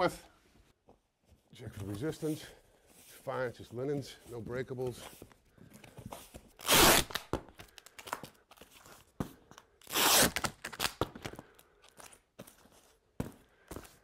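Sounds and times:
packing tape ripping: 0:06.5 - 0:08.8, 0:09.8 - 0:11.4.

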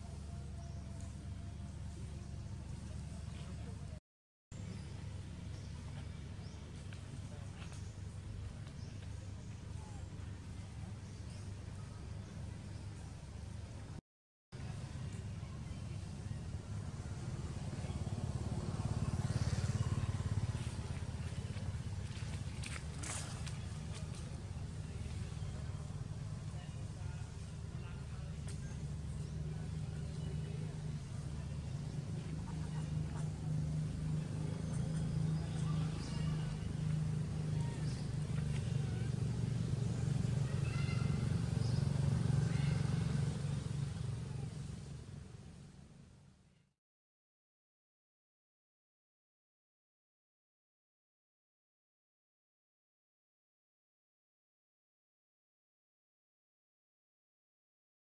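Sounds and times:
vehicle engine running: 0:14.6 - 0:46.4.

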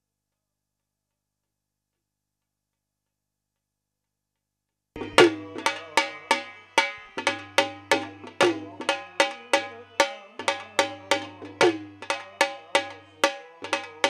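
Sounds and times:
dhol drum folk rhythm: 0:05.0 - 0:14.0.

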